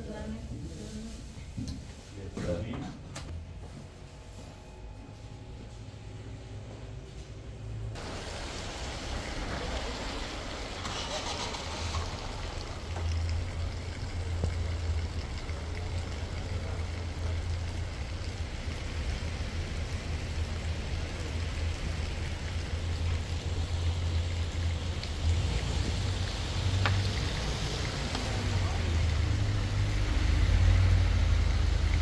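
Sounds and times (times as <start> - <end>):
steady outdoor hiss: 8.0 - 32.0.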